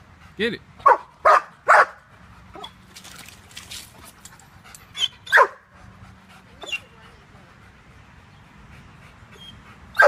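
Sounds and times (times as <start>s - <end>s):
dog barking: 0.8s - 2.0s, 5.3s - 5.6s.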